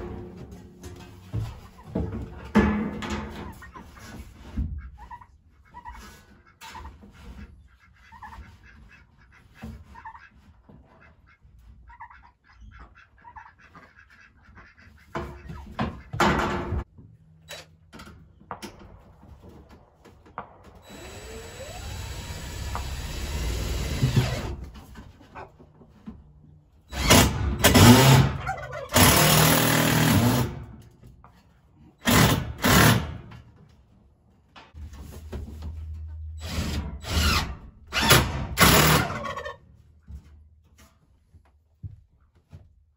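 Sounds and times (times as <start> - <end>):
cordless drill driving screws: 20.8 - 24.6.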